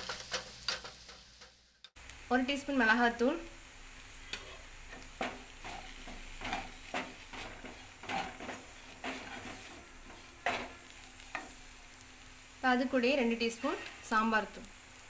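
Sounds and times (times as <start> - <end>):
faint frying sizzle: 0.0 - 15.0
wooden spatula scraping a pan: 4.3 - 11.6, 13.3 - 14.3.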